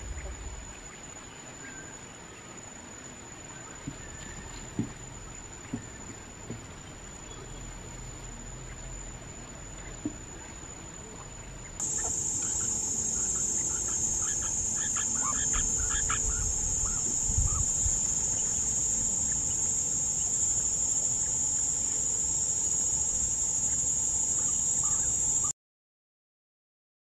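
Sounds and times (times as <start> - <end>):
insects droning: 0.0 - 25.5
quail chirping: 11.8 - 18.5.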